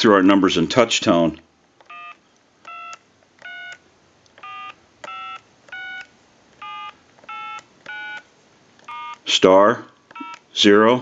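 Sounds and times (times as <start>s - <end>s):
telephone keypad tones: 1.8s - 3.8s, 4.4s - 9.3s, 10.1s - 10.5s.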